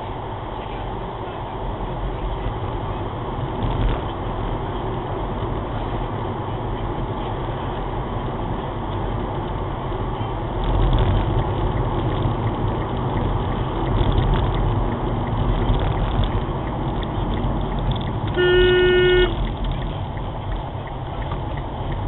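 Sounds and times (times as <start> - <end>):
car tyre and engine noise: 0.0 - 22.0
car horn: 18.3 - 19.4.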